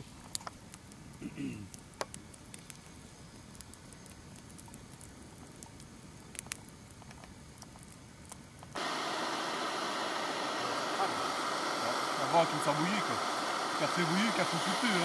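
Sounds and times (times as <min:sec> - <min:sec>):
campfire crackling: 0:00.0 - 0:15.0
steady rushing noise: 0:08.8 - 0:15.0.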